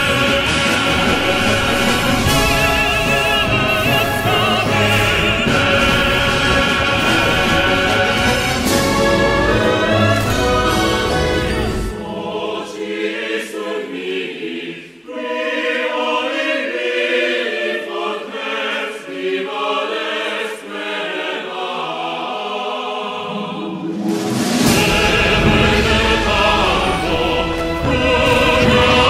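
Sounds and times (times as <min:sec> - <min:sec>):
orchestral music with heavy bass: 0:00.0 - 0:12.6, 0:23.2 - 0:29.0
choir singing held chords: 0:00.0 - 0:29.0.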